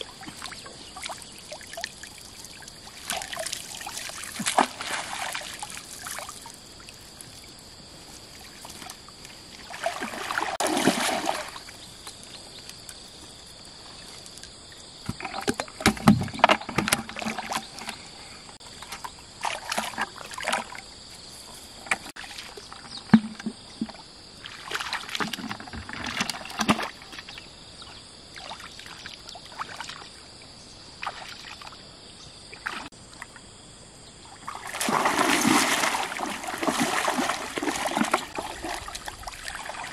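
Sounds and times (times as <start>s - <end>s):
high insect drone: 0.0s - 15.4s
water splashing and sloshing: 0.0s - 33.5s, 34.2s - 39.9s.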